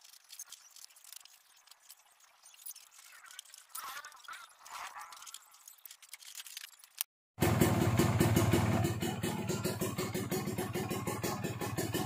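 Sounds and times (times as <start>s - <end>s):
two-stroke engine idling: 7.4s - 12.0s.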